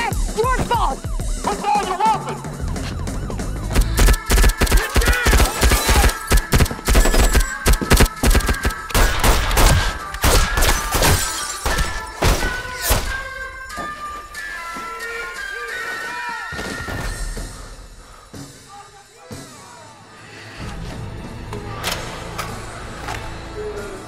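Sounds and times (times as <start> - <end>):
film music: 0.0 - 24.0
gunfire rapid shots: 3.7 - 12.5.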